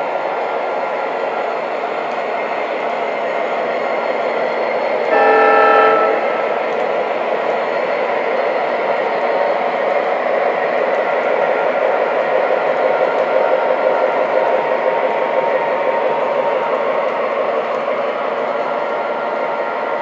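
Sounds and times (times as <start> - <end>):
model diesel locomotives rumbling: 0.0 - 20.0
locomotive horn: 5.1 - 6.9.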